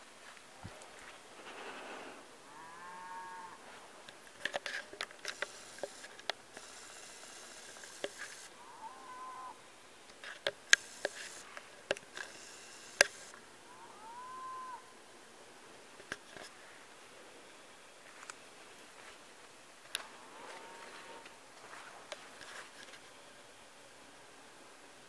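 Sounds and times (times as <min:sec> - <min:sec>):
animal calling: 0:02.4 - 0:03.7, 0:06.6 - 0:09.7, 0:12.2 - 0:15.0
sharp clicks and taps: 0:10.2 - 0:13.3.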